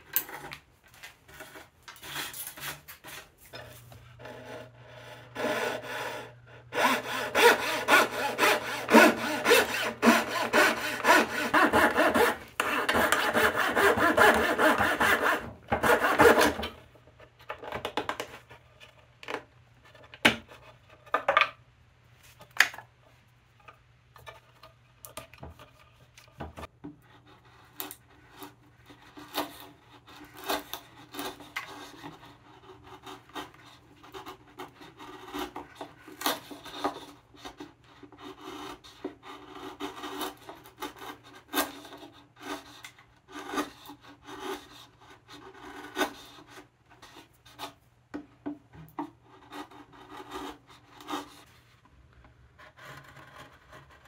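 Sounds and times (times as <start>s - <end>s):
chisel scraping wood: 1.3s - 16.8s, 27.0s - 47.8s, 49.0s - 51.6s, 52.5s - 54.0s.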